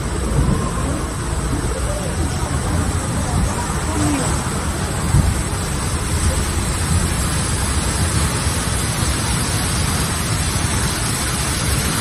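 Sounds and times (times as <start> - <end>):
rushing water hiss: 0.0 - 12.0.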